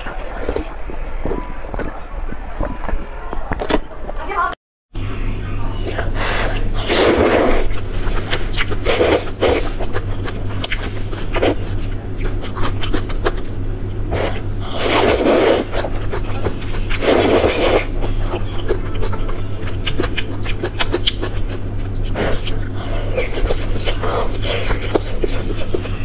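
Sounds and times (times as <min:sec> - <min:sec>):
person slurping noodles: 0:06.0 - 0:07.8, 0:08.6 - 0:09.9, 0:14.1 - 0:15.9, 0:16.9 - 0:18.0
wet chewing clicks: 0:06.5 - 0:26.0.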